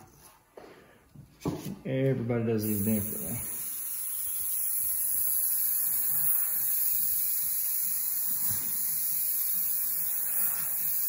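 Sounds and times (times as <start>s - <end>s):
airbrush spraying hiss: 2.6s - 11.0s.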